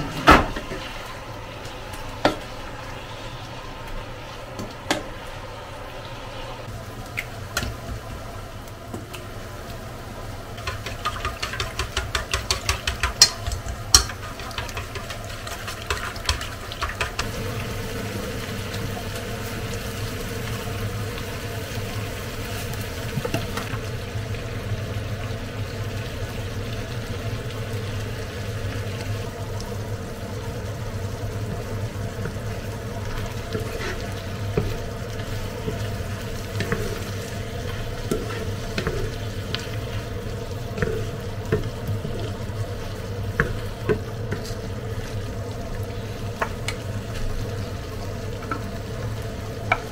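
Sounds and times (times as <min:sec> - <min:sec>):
food cooking in frying pan: 0:00.0 - 0:49.9
steady hob hum: 0:00.0 - 0:49.9
eggs beaten in metal bowl: 0:10.6 - 0:17.4.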